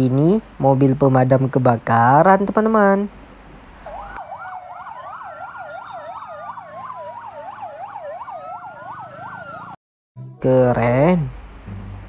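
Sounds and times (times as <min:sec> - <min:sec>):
siren fast yelp: 0:03.8 - 0:09.8
siren slow wail: 0:03.8 - 0:09.8.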